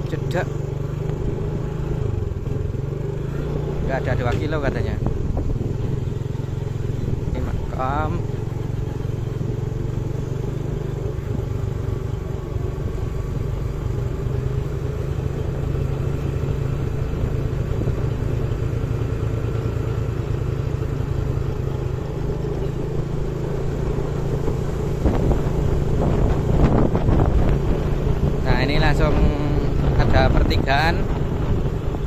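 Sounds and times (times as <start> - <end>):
motorcycle engine humming: 0.0 - 32.0
road and wind noise: 0.0 - 32.0.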